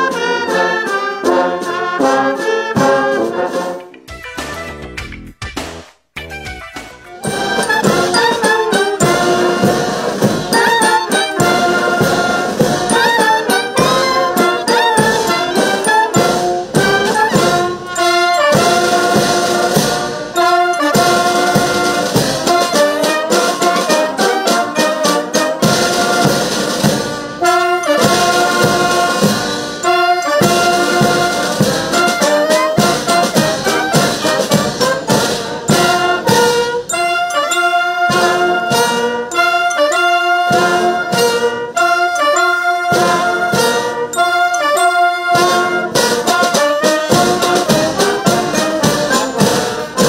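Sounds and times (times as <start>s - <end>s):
wind band playing: 0.0s - 4.9s, 6.2s - 50.0s
snare drums: 0.0s - 50.0s.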